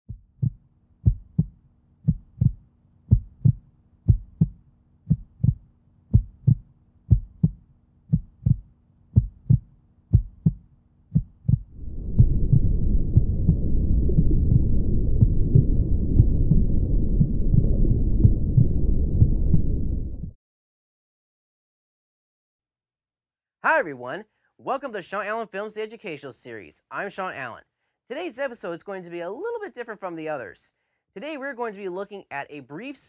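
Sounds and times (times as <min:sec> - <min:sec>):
heartbeat double thump: 0:00.1 - 0:20.4
dense low rumble: 0:11.4 - 0:20.4.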